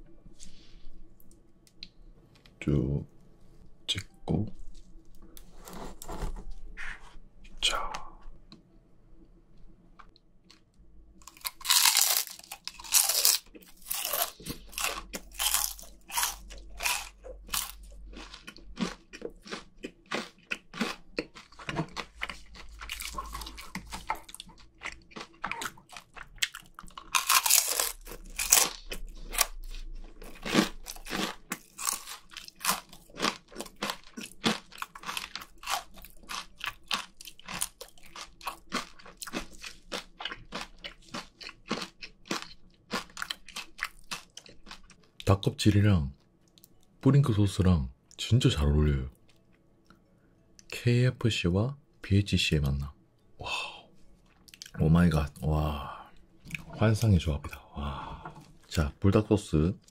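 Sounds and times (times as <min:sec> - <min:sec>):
crunching and chewing: 0:10.1 - 0:45.4, 0:54.2 - 0:54.8.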